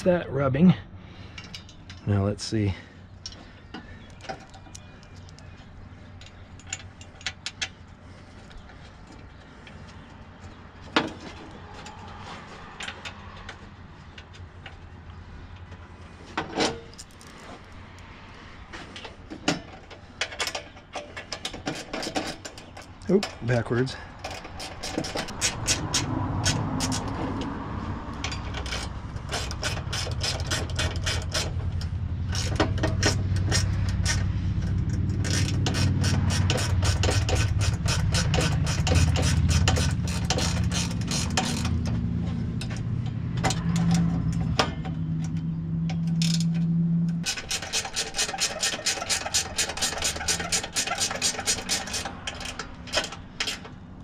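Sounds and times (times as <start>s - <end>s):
tools scraping and knocking on metal: 3.2s - 14.9s, 15.5s - 17.7s, 18.7s - 53.8s
hand ratchet clicking: 24.2s - 27.5s, 28.1s - 53.8s.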